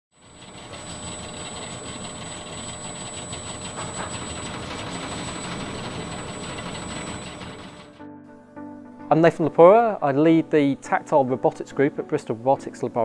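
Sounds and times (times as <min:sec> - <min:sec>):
faint high whine: 0:00.2 - 0:07.9
machine rushing hum: 0:00.2 - 0:08.0.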